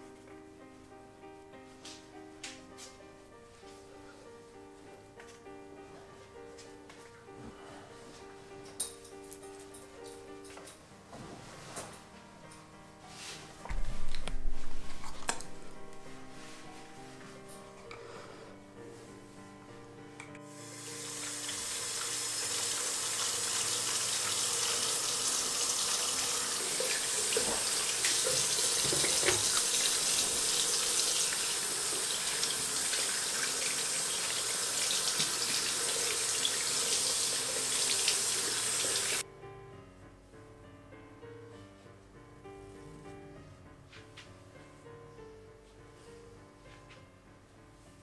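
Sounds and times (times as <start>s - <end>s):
soft background music: 0.0s - 48.0s
water running from a tap: 20.5s - 39.2s.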